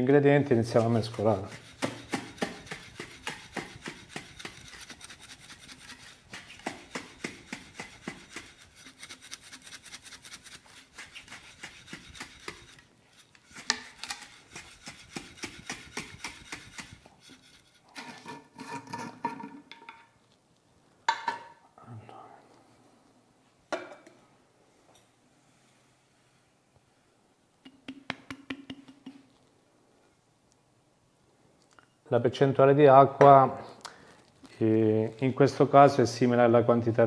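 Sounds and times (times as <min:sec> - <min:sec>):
sand shaken in glass jar: 0:00.6 - 0:13.6.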